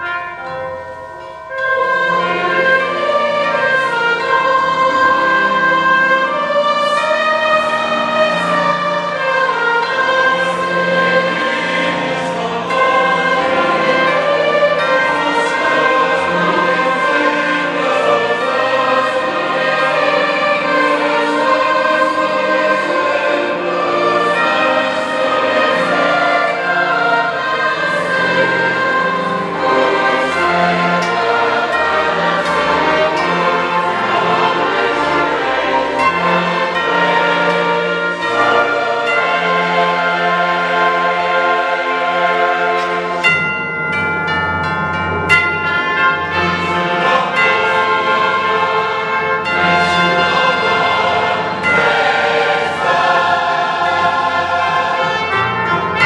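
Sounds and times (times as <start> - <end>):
choir singing chords: 0.0 - 56.0
orchestra playing: 0.0 - 56.0.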